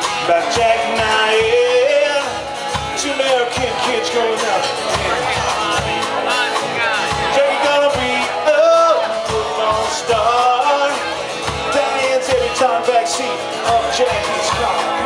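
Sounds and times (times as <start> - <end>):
live rock band playing: 0.0 - 15.0
male lead vocal: 0.0 - 15.0.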